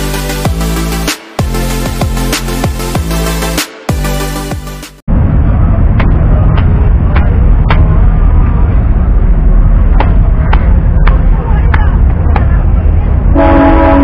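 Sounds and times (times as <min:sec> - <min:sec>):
electronic music: 0:00.0 - 0:05.0
low background rumble: 0:05.1 - 0:14.0.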